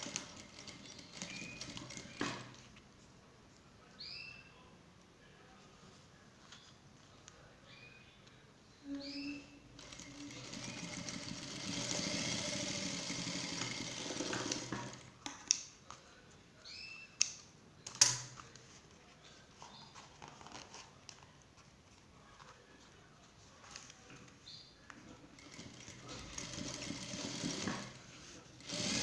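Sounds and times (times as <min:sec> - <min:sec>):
industrial sewing machine running: 0:00.0 - 0:02.5, 0:09.8 - 0:15.1, 0:25.4 - 0:28.0, 0:28.6 - 0:29.0.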